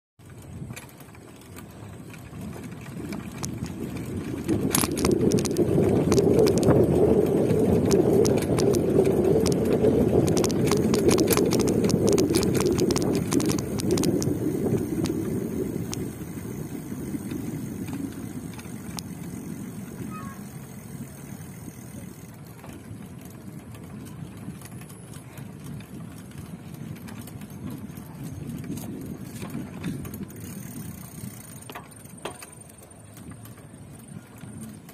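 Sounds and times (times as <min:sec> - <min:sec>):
bike clicks and rattles: 0:00.2 - 0:34.9
bike riding rush: 0:00.2 - 0:34.9.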